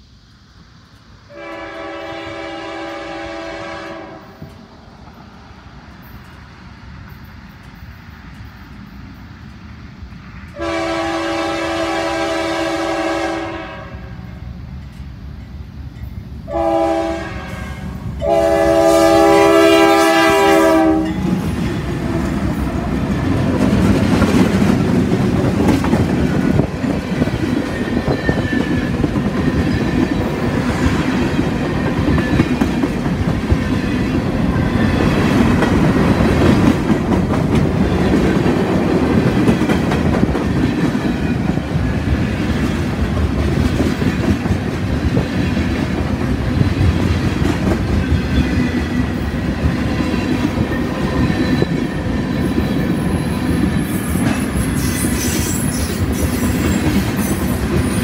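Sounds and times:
train cars rumbling past: 0.0 - 58.0
locomotive air horn: 1.3 - 4.5, 10.5 - 14.2, 16.5 - 21.2.

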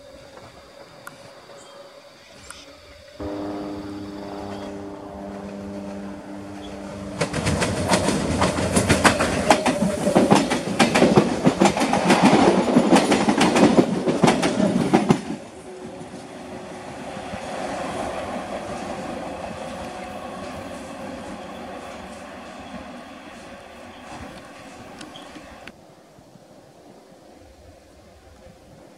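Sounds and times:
electric train humming: 0.0 - 25.8
train wheel clatter: 3.3 - 25.7.

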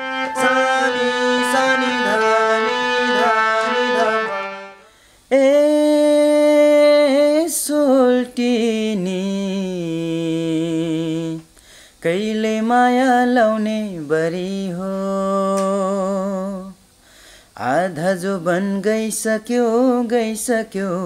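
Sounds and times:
harmonium chords: 0.0 - 4.9
man singing long held notes: 0.0 - 11.4.

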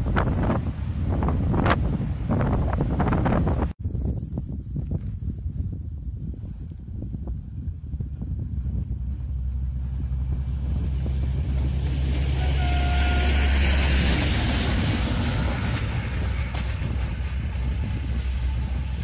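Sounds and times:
passenger train passing: 0.0 - 3.7, 9.0 - 19.0
wind rumble on microphone: 0.0 - 19.0.

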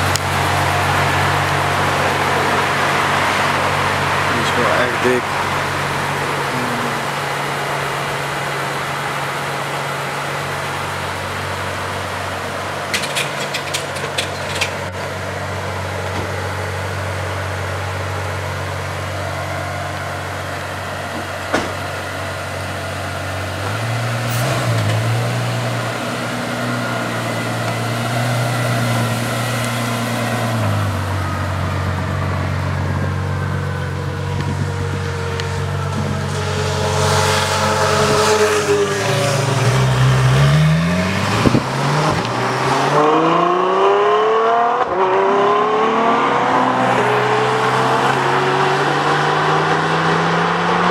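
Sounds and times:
car engine idling: 0.0 - 42.5.

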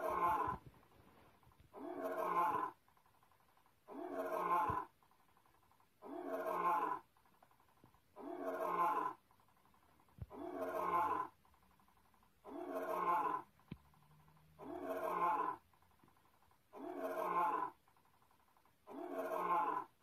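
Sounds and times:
lion roar sound effect: 0.0 - 0.6, 1.7 - 2.8, 3.9 - 4.9, 6.0 - 7.1, 8.2 - 9.2, 10.3 - 11.4, 12.4 - 13.6, 14.6 - 15.7, 16.7 - 17.8, 18.9 - 20.0.

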